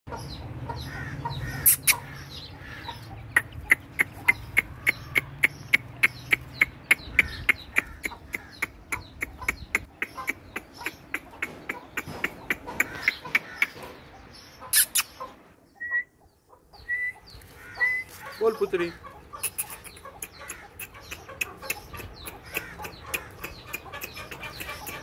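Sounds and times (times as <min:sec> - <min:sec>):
chicks peeping: 0:00.1 - 0:25.0.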